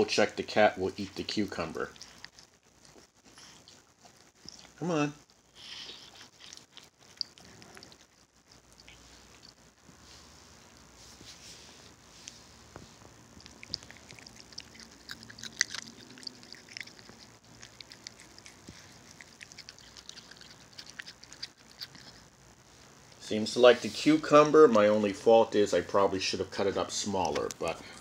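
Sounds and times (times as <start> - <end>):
cat chewing cucumber: 0.7 - 9.8, 13.2 - 22.3.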